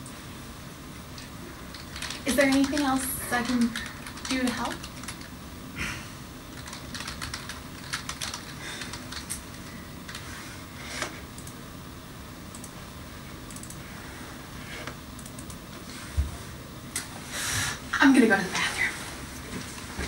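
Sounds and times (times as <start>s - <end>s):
typing on computer keyboard: 1.2s - 5.3s, 6.5s - 9.5s, 13.5s - 13.8s.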